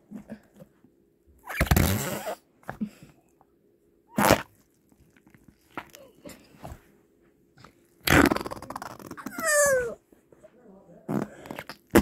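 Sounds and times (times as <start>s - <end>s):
faint steady hum: 0.0s - 12.0s
farts: 1.4s - 2.4s, 4.1s - 4.5s, 8.0s - 9.7s, 11.1s - 12.0s.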